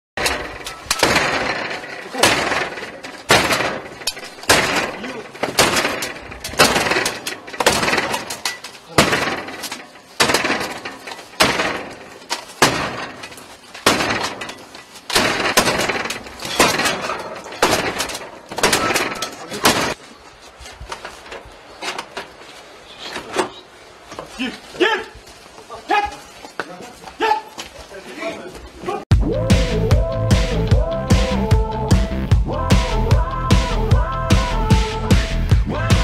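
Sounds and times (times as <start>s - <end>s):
battering ram slamming metal door: 0.2s - 20.0s.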